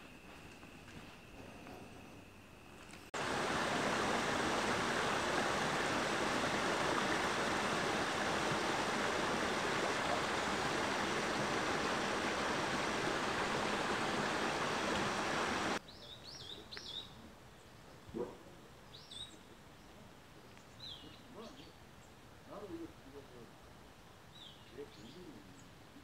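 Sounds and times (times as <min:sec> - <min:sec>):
mountain stream rushing: 0:03.1 - 0:15.8.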